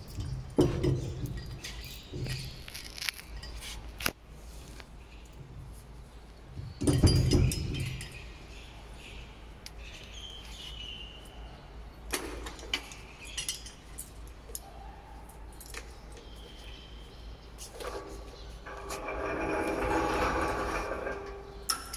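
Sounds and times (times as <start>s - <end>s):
metal clinks and rattles: 0.0s - 3.8s, 6.8s - 8.3s, 12.4s - 14.7s.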